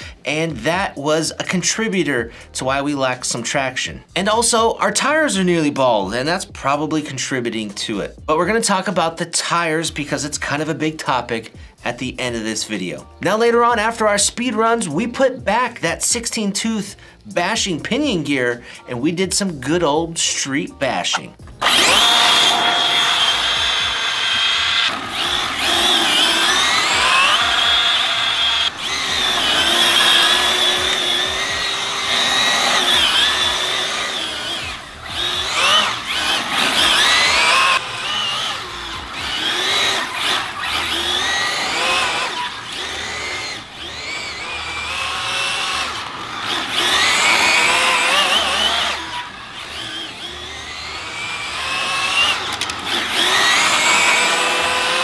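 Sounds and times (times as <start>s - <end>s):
rc car motor whining: 21.1s - 55.0s.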